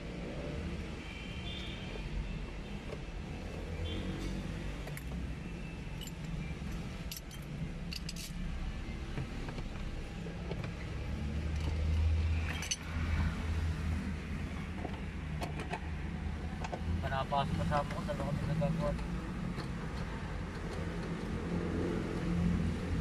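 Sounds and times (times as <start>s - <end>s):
metal tools clinking: 12.4s - 12.8s.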